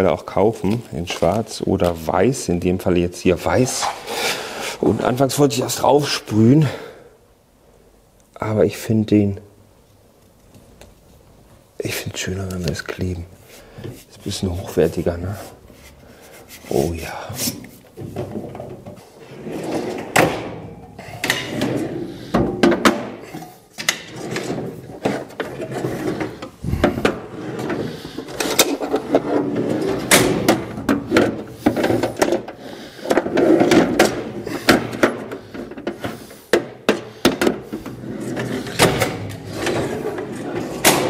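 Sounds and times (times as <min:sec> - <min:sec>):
metal drawers sliding and shutting: 0:17.4 - 0:41.0
tool cases set down in drawers: 0:18.0 - 0:19.1, 0:19.7 - 0:41.0.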